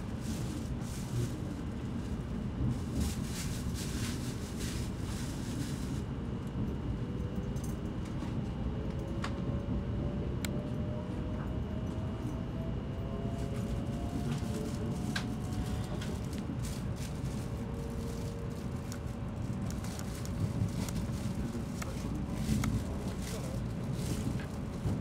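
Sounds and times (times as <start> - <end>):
train rumble: 0.0 - 25.0.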